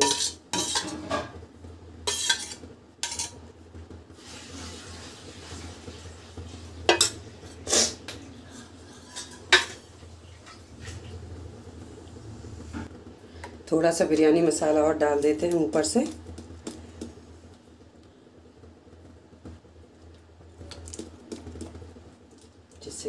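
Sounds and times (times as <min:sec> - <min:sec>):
metal utensils clinking: 0:00.0 - 0:01.3, 0:02.1 - 0:03.4, 0:06.9 - 0:07.2, 0:08.9 - 0:09.9.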